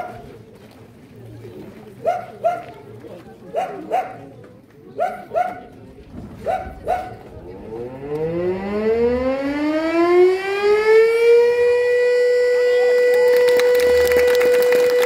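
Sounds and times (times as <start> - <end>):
siren wailing: 7.6 - 15.0.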